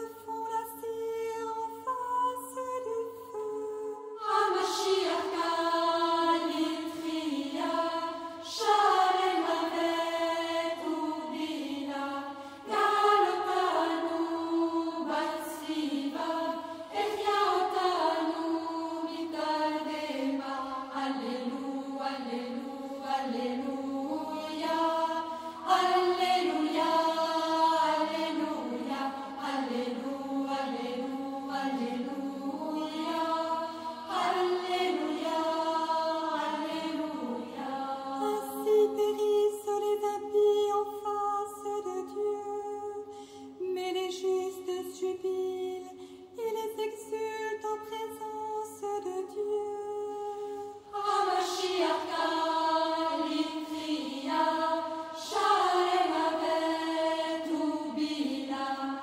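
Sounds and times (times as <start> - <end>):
sung chant with sliding notes: 4.0 - 39.0, 50.0 - 59.0.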